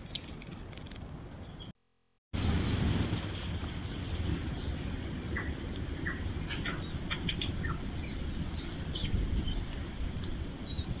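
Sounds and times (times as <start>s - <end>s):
small birds chirping: 2.4s - 2.9s, 3.9s - 11.0s
steady low rumble: 2.4s - 11.0s.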